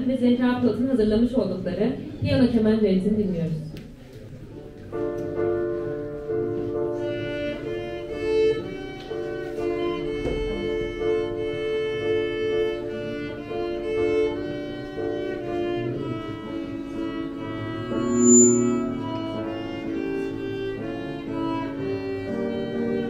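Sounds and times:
piano accompaniment: 4.4s - 23.0s
violin melody: 4.9s - 23.0s.

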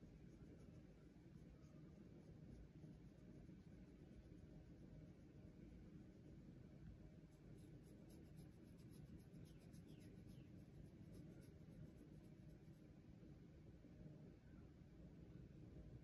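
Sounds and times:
fingernails scratching fur: 7.3s - 12.8s.

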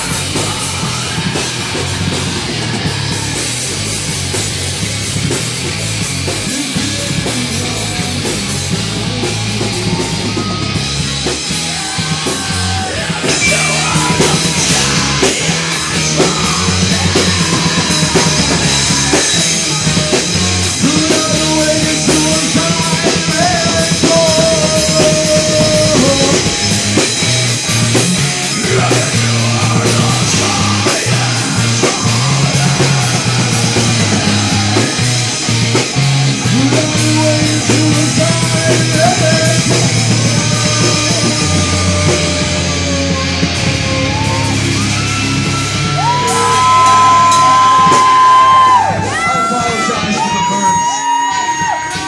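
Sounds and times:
hard rock band playing: 0.0s - 52.0s
man yelling into microphone: 46.2s - 52.0s.

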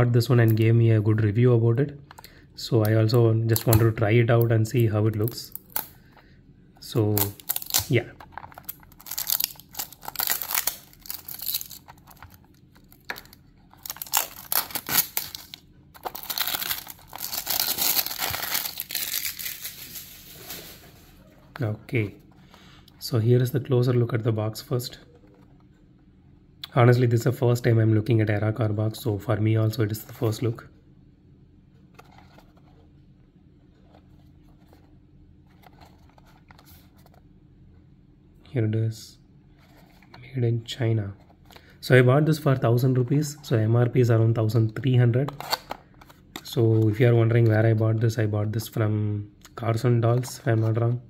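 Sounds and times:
packaging crinkling and tearing: 7.1s - 20.9s.

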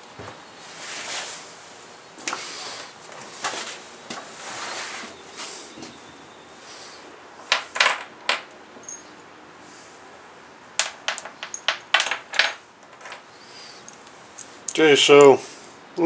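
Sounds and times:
short metallic ring: 8.8s - 9.2s
steel bolts clinking: 10.8s - 13.3s.

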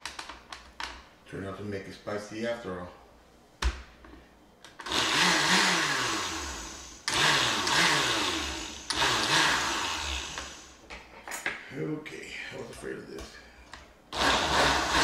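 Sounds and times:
blender running: 4.8s - 10.8s, 14.2s - 15.0s.

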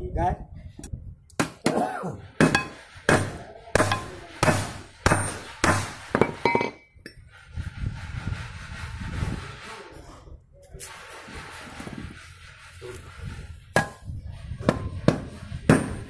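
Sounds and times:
hammer striking metal: 2.4s - 6.9s, 13.8s - 16.0s.

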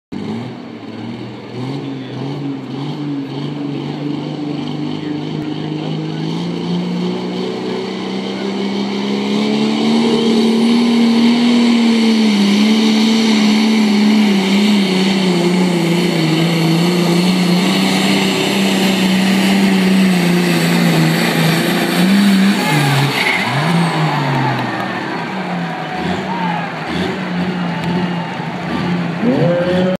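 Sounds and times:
tractor diesel engine running: 0.4s - 30.0s.

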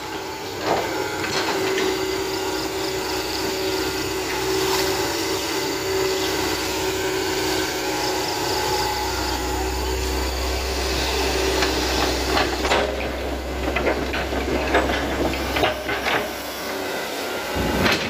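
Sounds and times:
excavator running: 0.0s - 18.0s.

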